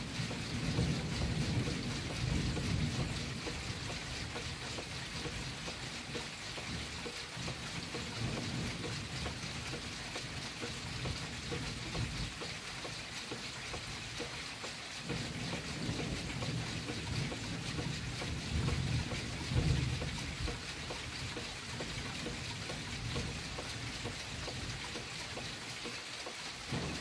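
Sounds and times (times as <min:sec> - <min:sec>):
heavy rain hissing: 0:00.0 - 0:27.0
raindrops ticking on window glass: 0:00.0 - 0:27.0
low thunder rumbling: 0:00.2 - 0:05.6.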